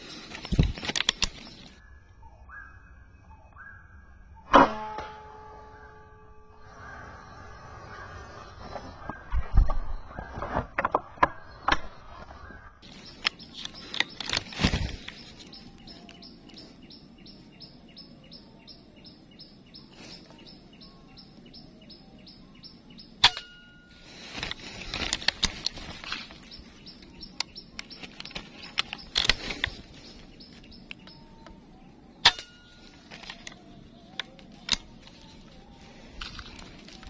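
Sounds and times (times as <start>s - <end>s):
rustling: 12.8s - 16.8s, 23.4s - 31.1s, 32.3s - 37.0s.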